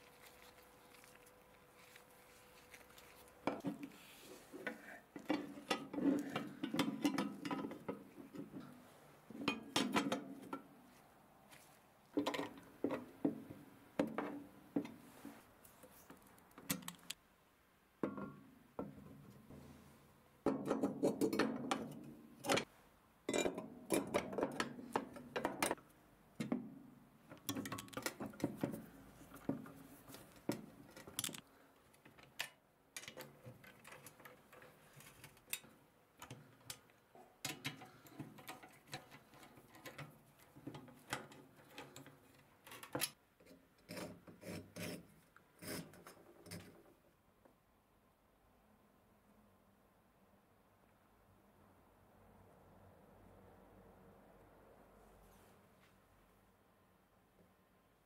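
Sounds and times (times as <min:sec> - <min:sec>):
scraping and rubbing: 0:00.0 - 0:07.0
metal clicks and knocks: 0:27.3 - 0:31.4.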